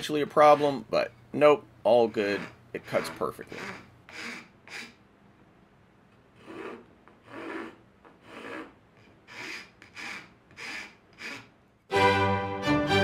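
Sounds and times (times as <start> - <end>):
rasp strokes on wood: 0.4 - 0.8, 2.1 - 5.0, 6.4 - 11.5.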